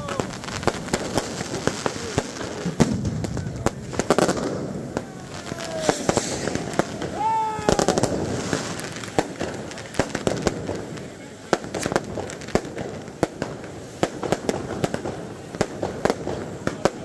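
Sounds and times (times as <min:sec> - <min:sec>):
people shouting: 0:00.0 - 0:00.6, 0:04.1 - 0:08.8
fireworks and firecrackers banging: 0:00.0 - 0:17.0.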